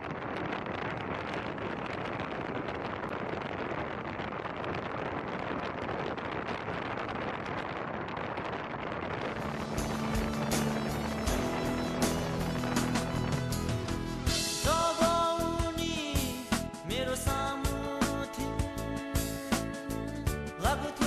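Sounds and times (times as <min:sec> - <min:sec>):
wind buffeting microphone: 0:00.0 - 0:15.8
car road noise: 0:09.2 - 0:14.7.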